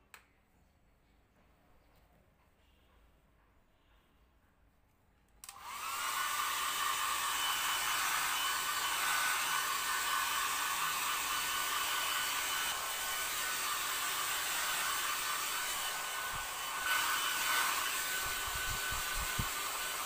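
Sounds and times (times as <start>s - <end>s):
hair dryer blowing: 5.4s - 20.0s.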